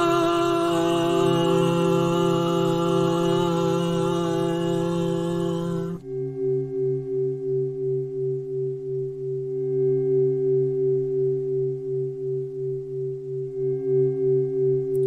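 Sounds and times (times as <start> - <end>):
pulsing synthesized drone: 0.0 - 6.0.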